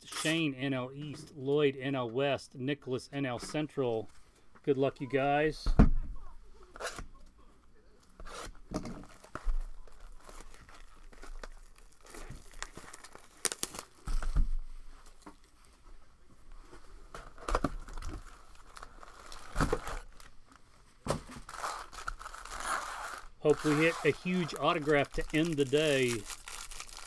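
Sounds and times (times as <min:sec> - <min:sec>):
plastic wrapping tearing and crinkling: 0:08.2 - 0:14.4, 0:17.3 - 0:20.4, 0:21.3 - 0:27.0.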